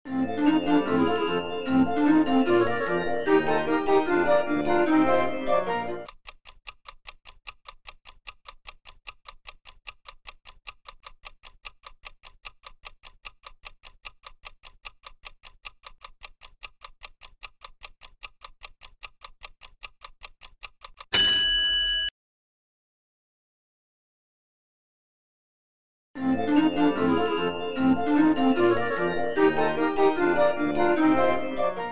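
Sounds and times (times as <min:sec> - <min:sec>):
keyboard jingle: 0:00.1 - 0:06.1, 0:26.2 - 0:31.9
clock ticking rapidly: 0:00.4 - 0:21.3, 0:26.5 - 0:31.9.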